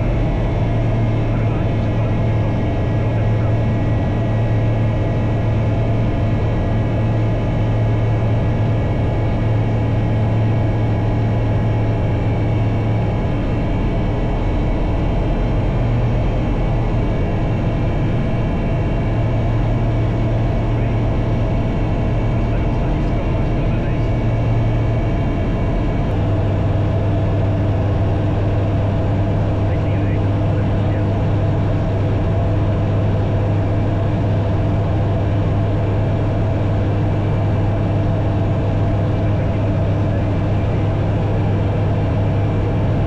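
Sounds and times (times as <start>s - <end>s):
plane engine drone in cockpit: 0.0s - 43.0s.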